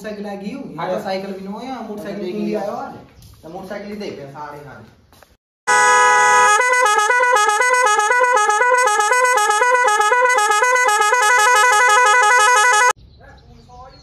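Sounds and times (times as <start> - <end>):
electronic musical horn: 5.7 - 13.0.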